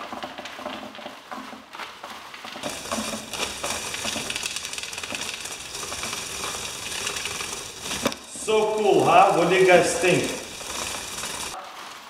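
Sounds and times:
sticky notes peeling and fluttering: 2.6 - 11.6.

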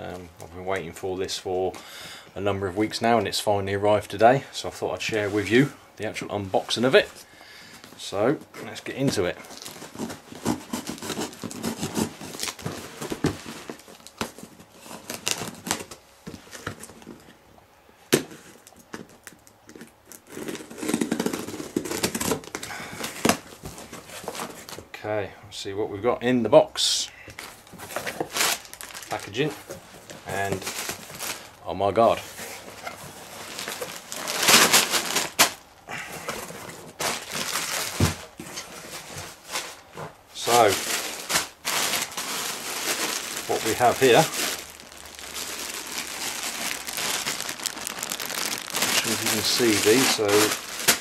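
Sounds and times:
plastic bags rustling: 5.0 - 17.3, 27.4 - 51.0
packing tape ripped off cardboard: 9.0 - 17.0, 19.7 - 24.8, 27.8 - 29.4, 32.6 - 35.6, 36.2 - 39.8, 40.4 - 51.0.

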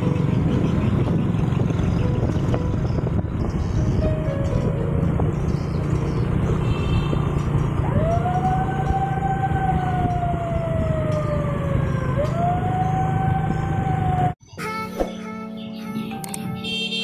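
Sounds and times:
motorcycle engines running: 0.0 - 14.4
siren wailing: 7.8 - 14.4.

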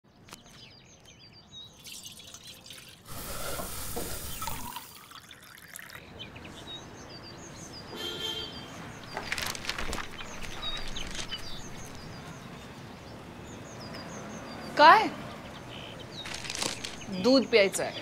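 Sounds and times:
small birds chirping: 0.1 - 18.0
milk pouring into glass: 1.8 - 6.0
papery rustle: 9.1 - 12.1, 16.2 - 17.2.

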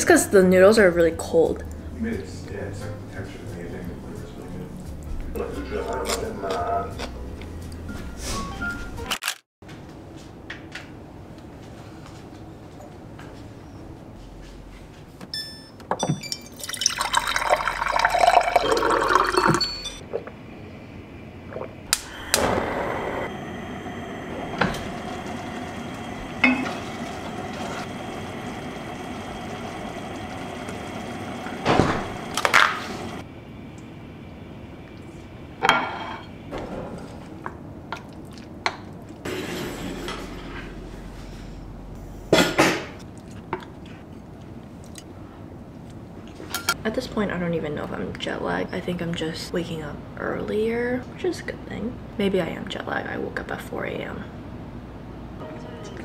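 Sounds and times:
water pouring into a glass: 16.5 - 19.8
steady hum: 20.0 - 37.9
pot and dishes clinking: 26.4 - 26.8.

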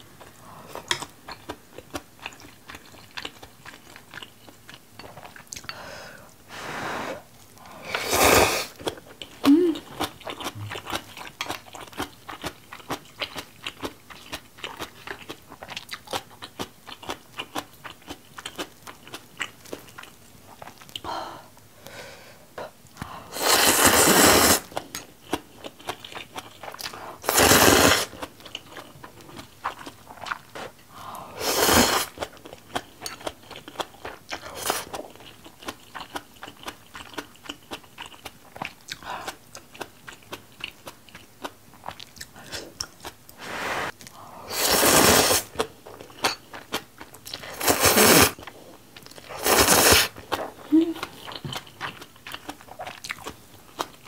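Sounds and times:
wet chewing: 0.2 - 5.7, 32.1 - 44.2, 45.4 - 54.0
noodle slurps: 23.4 - 24.7, 27.2 - 28.1, 44.5 - 45.6, 47.5 - 48.4, 49.4 - 50.2.

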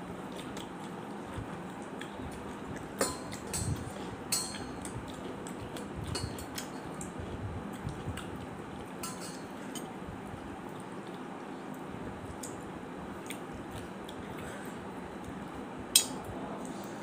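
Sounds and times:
clinks against metal plate: 9.0 - 9.9.

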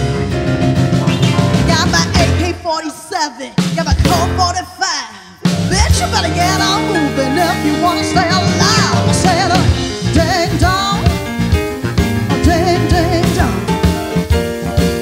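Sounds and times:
electric bass: 0.0 - 2.6, 5.5 - 15.0
keyboard: 0.0 - 2.6
drum kit: 0.0 - 15.0
woman singing with vibrato: 1.6 - 11.2, 12.3 - 13.7.

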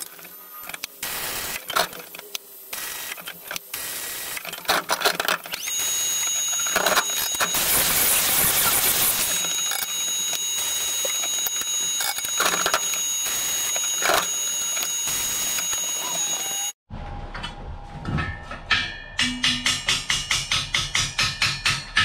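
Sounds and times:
machine whine with hiss: 0.0 - 16.8.

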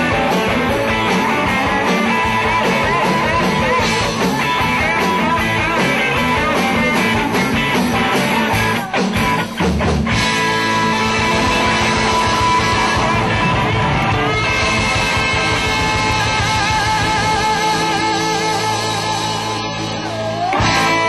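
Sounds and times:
live rock band playing: 0.0 - 21.0.

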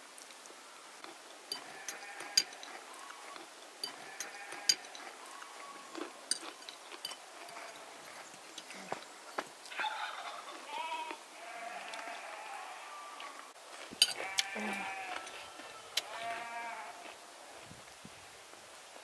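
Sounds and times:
tea cups and spoons clinking: 1.5 - 2.8, 3.8 - 5.1, 6.0 - 7.3, 14.0 - 14.3.

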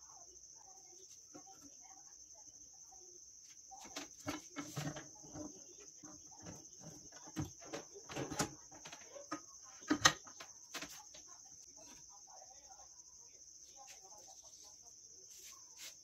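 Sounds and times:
crickets trilling: 0.0 - 16.0
metal knocking and scraping: 3.9 - 10.9.

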